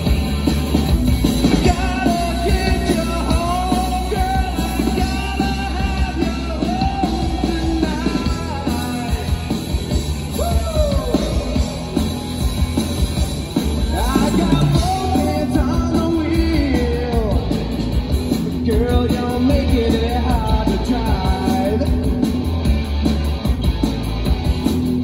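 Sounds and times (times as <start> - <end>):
bass guitar: 0.0 - 25.0
drum kit: 0.0 - 25.0
electric guitar: 0.0 - 25.0
man singing: 1.5 - 9.6, 10.4 - 11.9, 13.8 - 17.7, 18.5 - 22.4.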